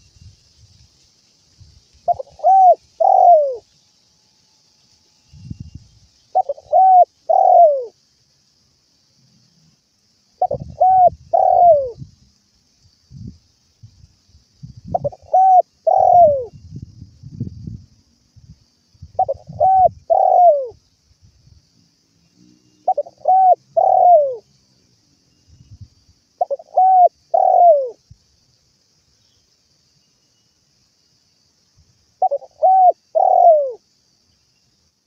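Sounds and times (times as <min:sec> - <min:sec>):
dove cooing: 0:02.1 - 0:03.6, 0:06.4 - 0:07.9, 0:10.4 - 0:12.0, 0:14.9 - 0:16.5, 0:19.2 - 0:20.8, 0:22.8 - 0:24.4, 0:26.4 - 0:28.0, 0:32.2 - 0:33.8.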